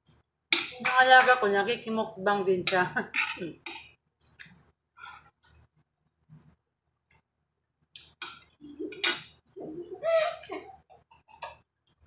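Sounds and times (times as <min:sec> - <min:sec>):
cutlery clinking on ceramic plate: 0:08.2 - 0:09.4.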